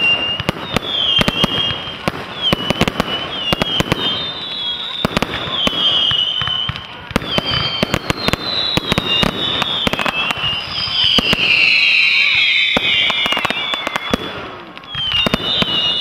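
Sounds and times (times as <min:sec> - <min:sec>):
fireworks bangs and crackles: 0:00.0 - 0:16.0
high firework whistles: 0:00.0 - 0:16.0.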